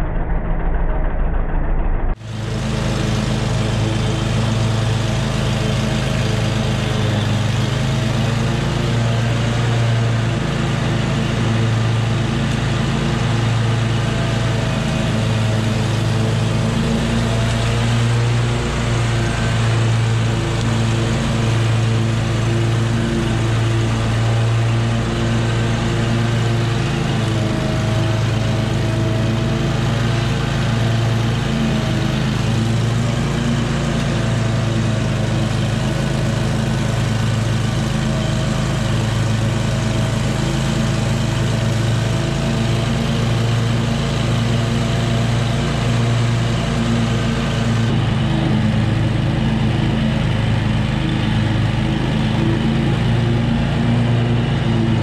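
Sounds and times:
mower engine running: 2.1s - 55.0s
mower blades cutting grass: 2.2s - 55.0s.

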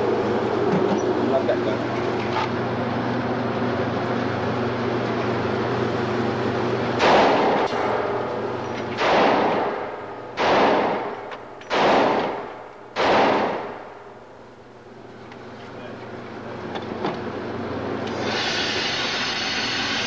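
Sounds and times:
steady hum: 0.0s - 20.0s
pistol shots echoing: 7.0s - 8.2s, 9.0s - 14.1s.

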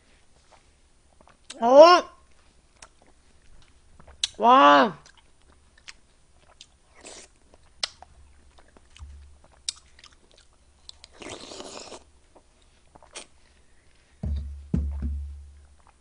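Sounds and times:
person chewing wet crunchy food: 0.4s - 1.6s, 2.3s - 4.4s, 5.0s - 14.2s
low thump: 14.2s - 15.7s.

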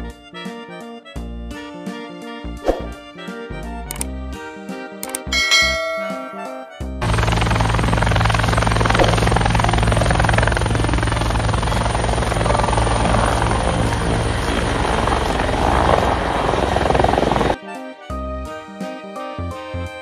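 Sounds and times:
helicopter engine hum: 5.0s - 17.6s
helicopter rotor blades chopping: 7.0s - 17.6s.

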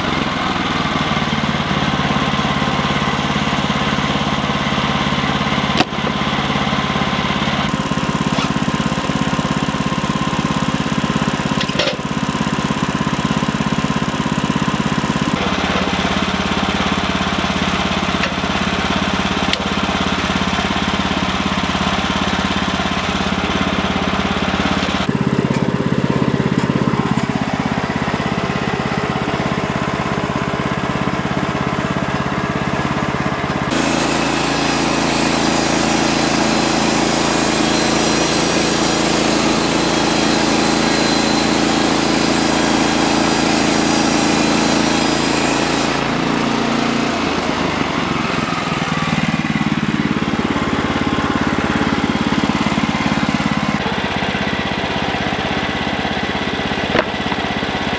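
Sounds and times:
sawmill engine running: 0.0s - 57.9s
band blade cutting log: 5.6s - 6.2s, 8.2s - 9.1s, 33.7s - 46.2s, 56.9s - 57.6s.

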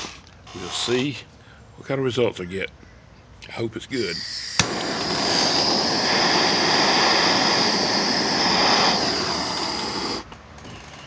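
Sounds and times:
gas torch flame hissing: 0.0s - 1.1s, 4.0s - 10.3s.

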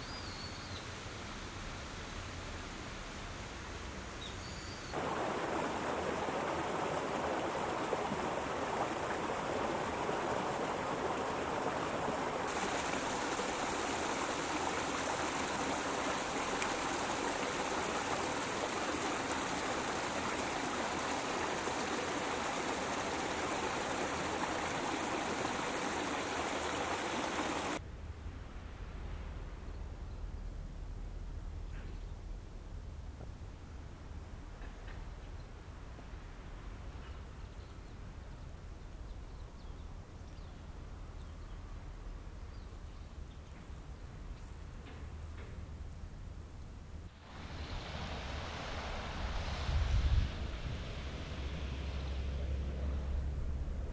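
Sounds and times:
running water rushing: 4.9s - 27.8s, 47.1s - 53.9s.

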